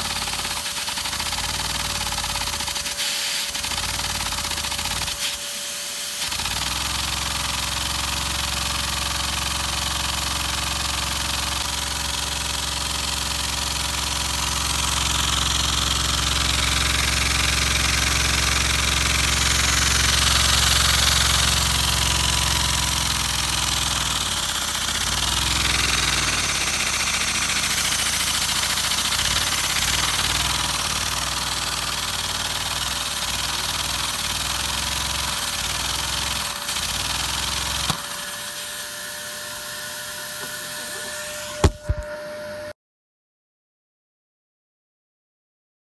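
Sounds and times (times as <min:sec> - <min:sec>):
vacuum cleaner air hiss: 0:02.8 - 0:03.7, 0:05.0 - 0:06.4, 0:40.0 - 0:42.1
toy engine clattering: 0:14.9 - 0:38.0.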